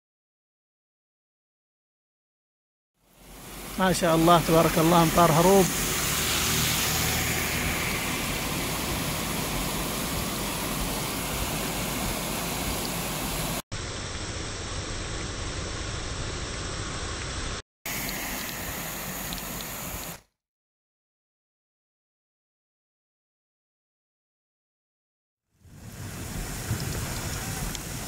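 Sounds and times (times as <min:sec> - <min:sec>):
floodwater rushing over rocks: 0:03.2 - 0:13.6, 0:25.7 - 0:28.0
vehicle driving through water: 0:03.3 - 0:13.1.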